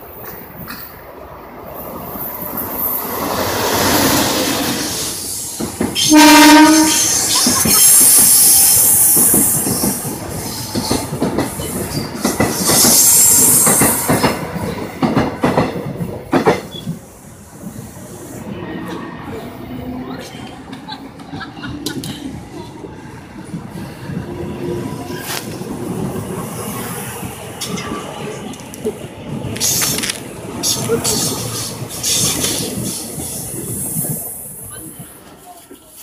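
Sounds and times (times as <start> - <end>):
train horn blast: 6.0 - 7.2
train wheels clattering and squealing: 6.8 - 17.9, 27.2 - 36.0.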